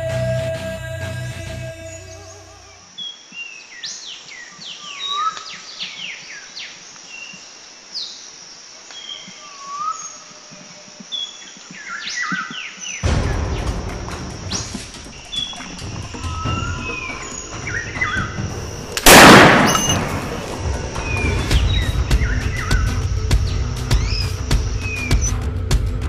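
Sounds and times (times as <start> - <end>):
birds whistling and chirping: 14.5 - 18.9, 19.6 - 20.1, 21.0 - 25.4.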